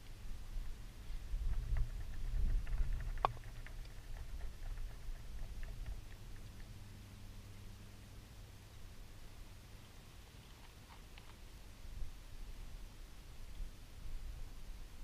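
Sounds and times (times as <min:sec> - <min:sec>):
wind rumbling on microphone: 0:00.0 - 0:06.8, 0:11.8 - 0:15.0.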